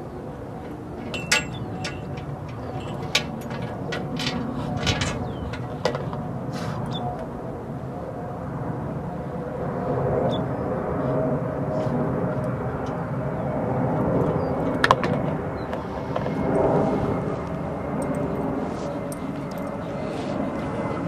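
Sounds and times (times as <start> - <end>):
distant engine rumble: 0.0 - 21.0
faint wavering hum: 0.0 - 21.0.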